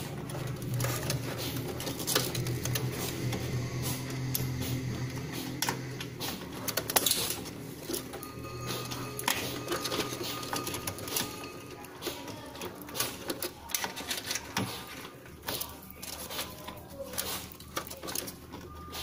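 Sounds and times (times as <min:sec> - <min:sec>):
steady low hum: 0:00.0 - 0:11.9
plastic and metal clicks and rattles: 0:06.5 - 0:08.2, 0:09.2 - 0:18.8.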